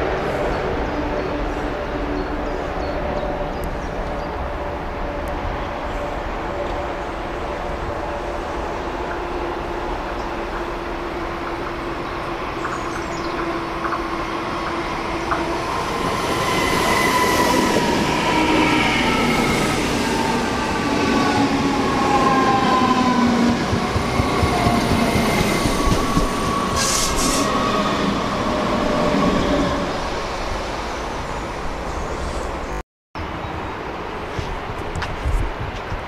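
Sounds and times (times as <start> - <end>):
train wheels rumbling on rail: 0.0 - 30.8
brief hiss: 26.8 - 27.5.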